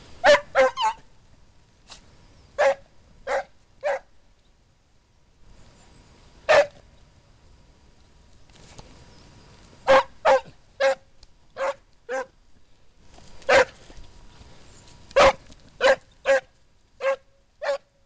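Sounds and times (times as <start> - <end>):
hound barking: 0.2 - 1.1, 2.6 - 4.1, 6.5 - 6.8, 9.9 - 12.3, 13.5 - 13.8, 15.2 - 17.9.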